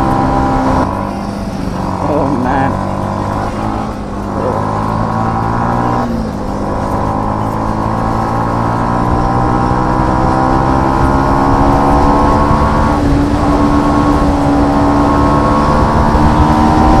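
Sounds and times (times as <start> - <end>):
motorcycle engine accelerating: 0.0 - 17.0.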